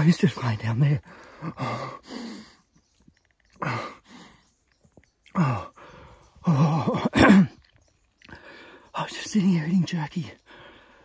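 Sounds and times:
man breathing heavily: 1.0s - 2.7s, 3.6s - 4.5s, 5.3s - 6.5s, 8.3s - 8.9s, 10.4s - 11.0s.

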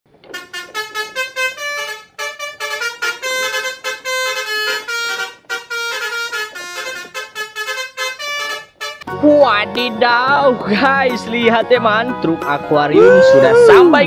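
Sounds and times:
buzzy horn-like melody: 0.2s - 9.1s.

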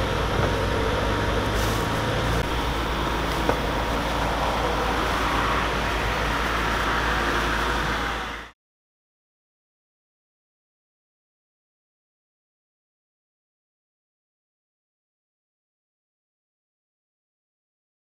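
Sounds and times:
street traffic hum: 0.0s - 8.6s.

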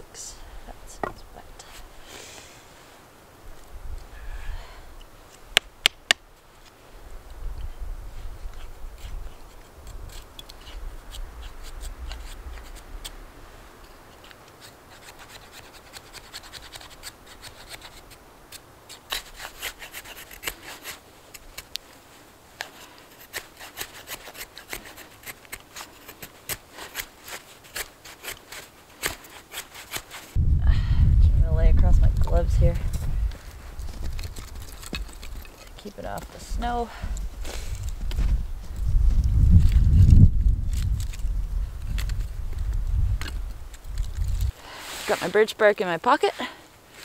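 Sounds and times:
knife scraping wood: 8.4s - 13.2s, 14.1s - 21.8s, 22.6s - 30.4s.

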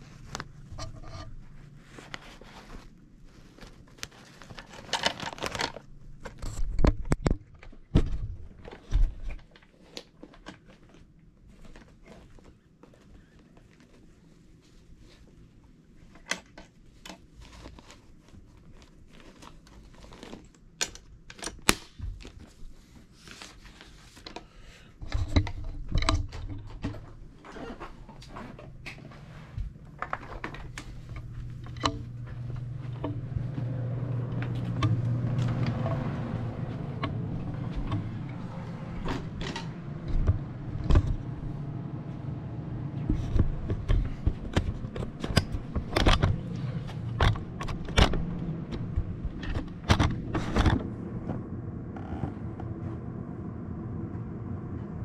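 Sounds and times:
low hum: 25.4s - 55.0s
clicks knocks and rattles: 43.1s - 50.9s.

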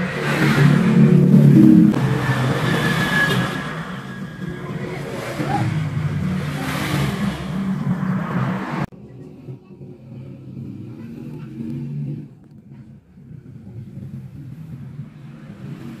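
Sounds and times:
vehicle engine running: 0.0s - 16.0s
faint engine hum: 3.6s - 16.0s.

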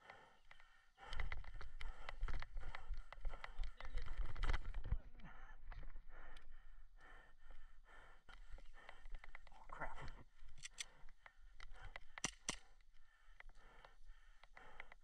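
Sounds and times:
sharp clicks: 8.3s - 15.0s
small handling clicks: 10.4s - 15.0s.

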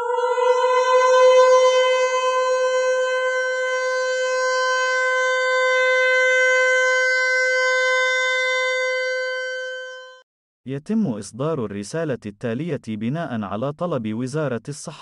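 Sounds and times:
emergency alert siren tone: 0.0s - 10.2s.

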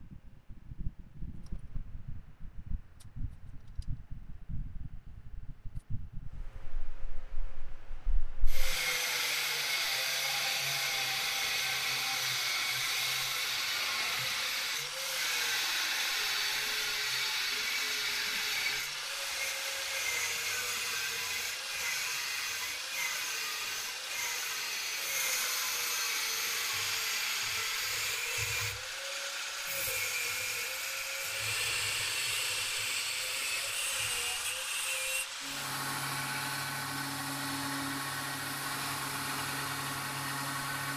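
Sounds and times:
angle grinder cutting steel: 8.5s - 40.9s.

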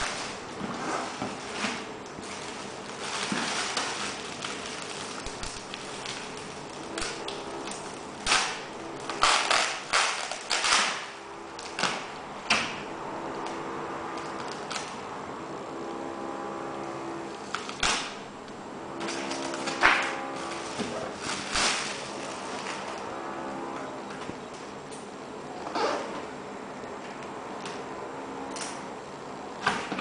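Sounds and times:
plastic wrapping crinkling: 0.0s - 11.0s, 19.1s - 23.1s.

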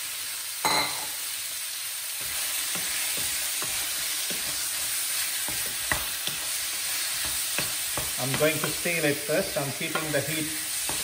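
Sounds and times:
meat sizzling in hot oil: 0.0s - 11.0s
wooden spoon knocking and scraping: 2.2s - 9.0s, 9.8s - 11.0s.

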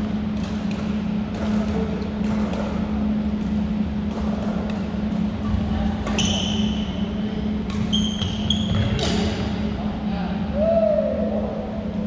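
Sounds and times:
steady low hum: 0.0s - 12.0s
rackets striking shuttlecock: 0.2s - 6.9s, 7.5s - 9.4s
sneakers squeaking on court: 6.1s - 6.9s, 7.7s - 9.2s.

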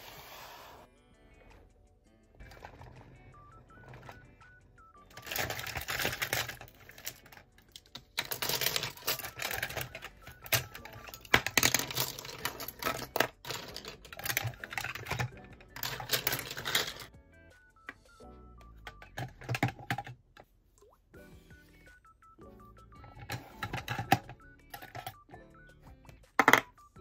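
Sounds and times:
plastic pens clattering: 2.4s - 4.3s, 5.1s - 17.1s, 18.8s - 20.2s, 23.1s - 25.2s, 26.3s - 26.8s.

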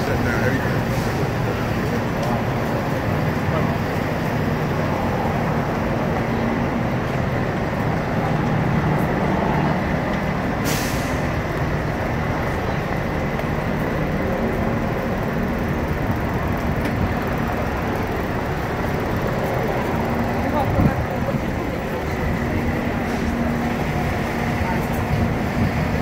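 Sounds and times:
heavy vehicle engine running: 0.0s - 26.0s
air brake hiss: 0.9s - 1.3s, 10.6s - 11.3s.

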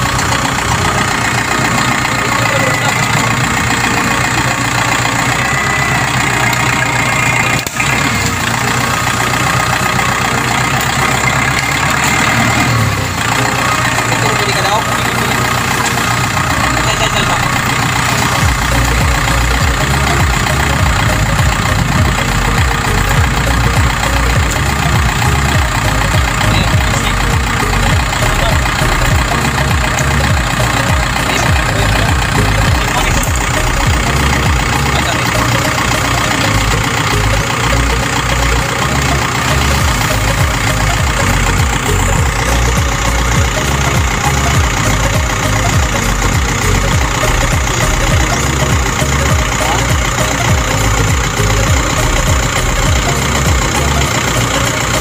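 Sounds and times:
tractor engine idling: 0.0s - 55.0s.

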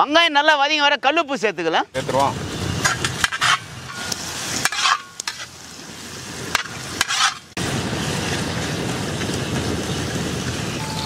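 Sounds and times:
onions sizzling in hot oil: 2.0s - 11.0s
metal ladle scraping pan: 2.8s - 5.6s, 6.5s - 7.6s.

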